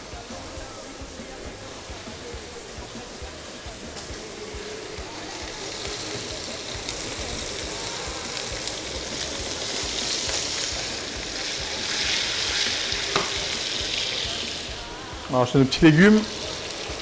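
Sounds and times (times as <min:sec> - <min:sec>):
sausage sizzling in frying pan: 0:00.0 - 0:17.0.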